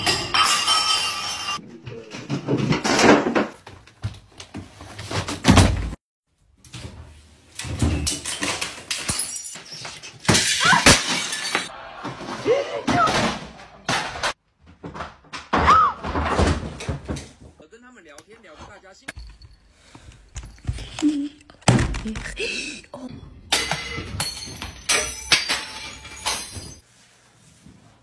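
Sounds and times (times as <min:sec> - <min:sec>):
objects crashing to floor: 0:00.0 - 0:06.0, 0:07.6 - 0:17.6, 0:21.6 - 0:22.4, 0:23.1 - 0:26.8
objects breaking: 0:08.1 - 0:17.5, 0:23.4 - 0:26.8.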